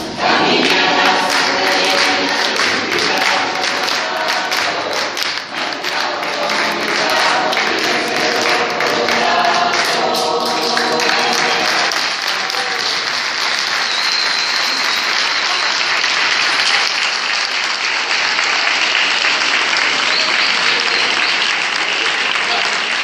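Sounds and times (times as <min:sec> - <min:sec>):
choir holding final chord: 0:00.0 - 0:13.1
audience applauding: 0:00.0 - 0:23.0.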